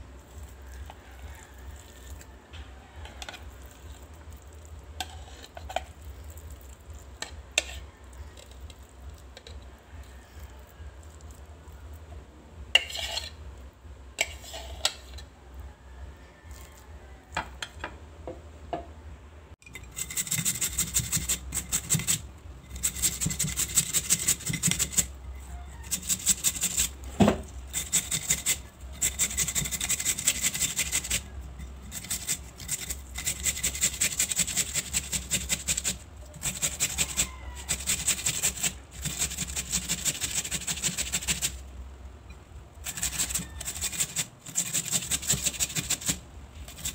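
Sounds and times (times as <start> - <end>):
potato rasping on metal grater: 12.8 - 13.4, 19.8 - 41.7, 42.8 - 46.9.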